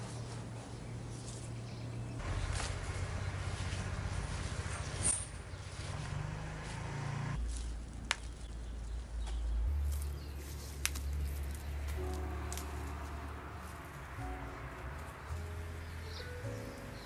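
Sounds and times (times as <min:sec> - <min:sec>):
foliage rustling: 0:00.0 - 0:17.0
stems snapping: 0:02.3 - 0:03.9, 0:07.4 - 0:14.0
low steady hum: 0:06.9 - 0:17.0.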